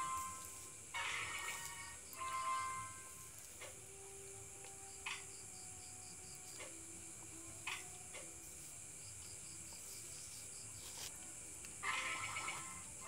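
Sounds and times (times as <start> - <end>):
crickets trilling: 0.0 - 13.0
pulsed insect chirp: 0.0 - 13.0.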